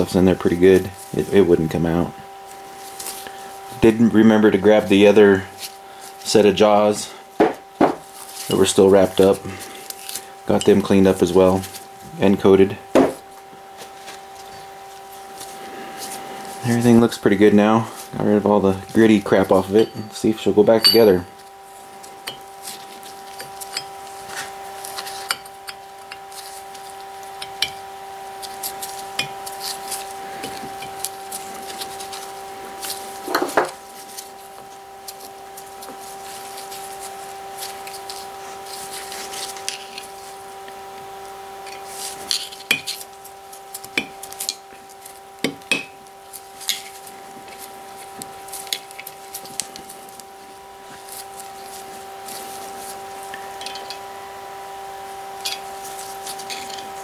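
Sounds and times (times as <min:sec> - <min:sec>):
steady hum: 0:00.0 - 0:57.0
steel chuck parts clinking: 0:20.8 - 0:21.1.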